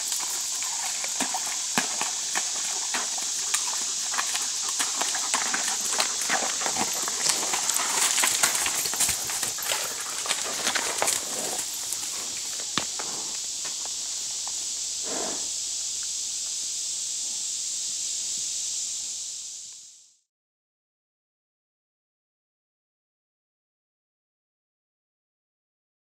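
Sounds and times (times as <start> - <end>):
hooves splashing through creek: 0.0 - 14.6
steady high hiss: 0.0 - 20.3.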